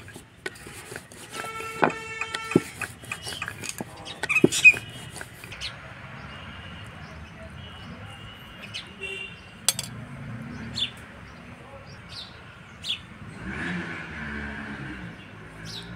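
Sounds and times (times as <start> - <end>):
rolling pin knocking on board: 1.6 - 2.9.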